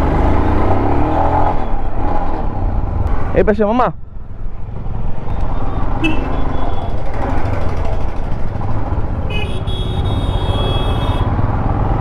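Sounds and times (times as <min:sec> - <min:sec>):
road noise: 0:00.0 - 0:12.0
vehicle horn: 0:06.0 - 0:06.9, 0:09.3 - 0:11.3
motorcycle engine running: 0:06.0 - 0:12.0.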